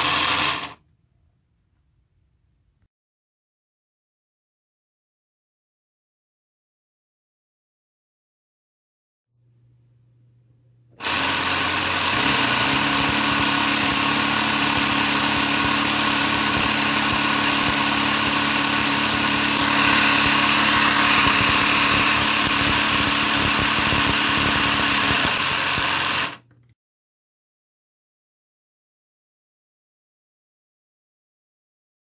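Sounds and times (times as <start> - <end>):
electric motor whirring: 0.0 - 0.8, 11.0 - 26.6.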